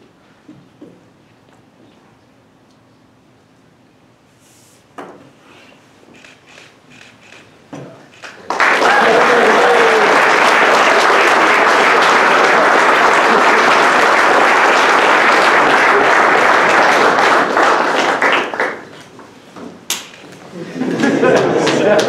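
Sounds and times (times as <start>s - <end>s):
crowd applauding: 8.2s - 19.1s, 20.9s - 22.0s.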